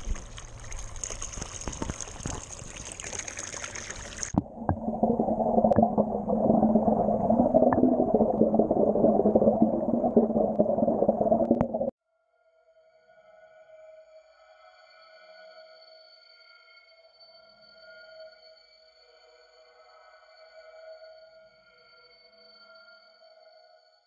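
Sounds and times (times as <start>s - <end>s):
underwater bubbling rush: 0.0s - 11.9s
water gushing into pool: 0.0s - 11.9s.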